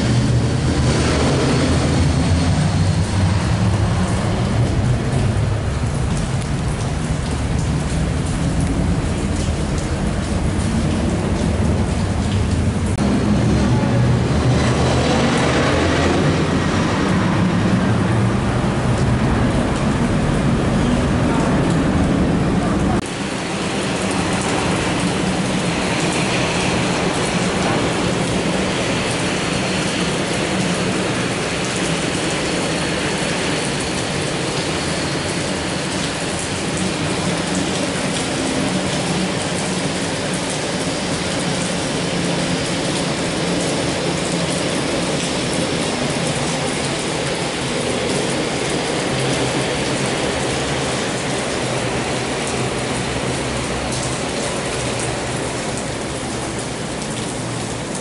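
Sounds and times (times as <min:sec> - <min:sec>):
turboprop droning: 0:00.0 - 0:39.6
rain hiss: 0:00.0 - 0:58.0.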